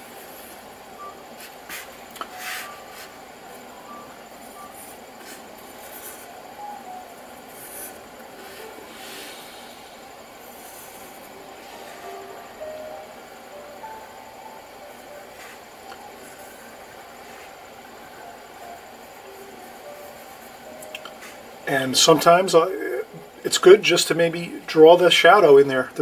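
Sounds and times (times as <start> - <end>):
background hiss: 0.0 - 26.0
pencil scratching on paper: 7.5 - 9.1, 10.4 - 11.2.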